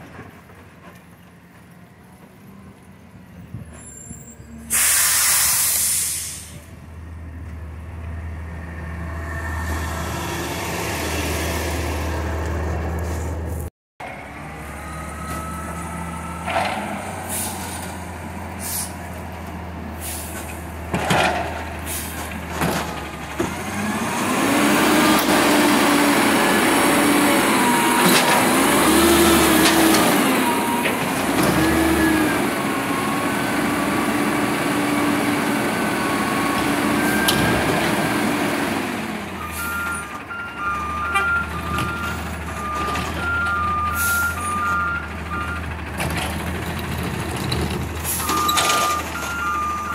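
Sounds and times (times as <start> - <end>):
truck engine idling and revving: 6.3 - 49.9
reversing beeper: 14.5 - 17.7, 27.2 - 33.7, 39.4 - 45.7, 48.1 - 49.9
dumpster crash: 20.1 - 35.1, 40.9 - 49.9.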